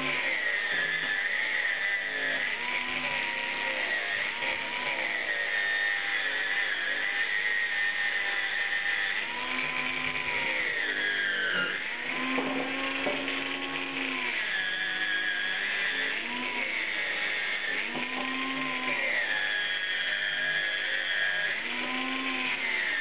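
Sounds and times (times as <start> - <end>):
angle grinder cutting metal: 0.0 - 23.0.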